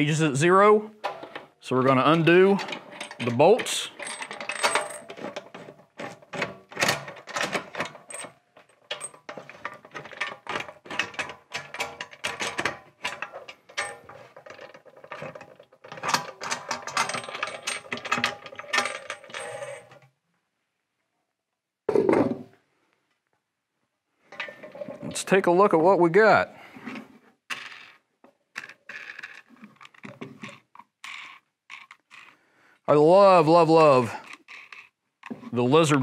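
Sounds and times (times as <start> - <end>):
metal bolts clicking and scraping: 1.0 - 20.0, 24.3 - 25.4, 33.7 - 36.0.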